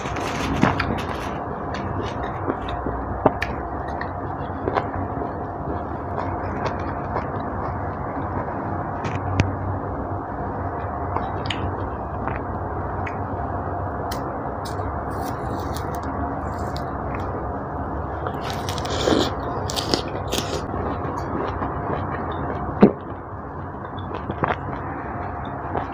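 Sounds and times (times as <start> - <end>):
orange peel crackling and tearing: 14.1 - 17.3, 18.3 - 20.7.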